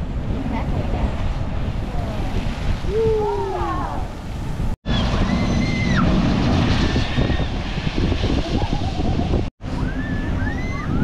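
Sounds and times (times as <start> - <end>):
ocean surf rushing: 0.0 - 11.0
wind buffeting microphone: 0.0 - 11.0
high whistling tones: 9.7 - 11.0.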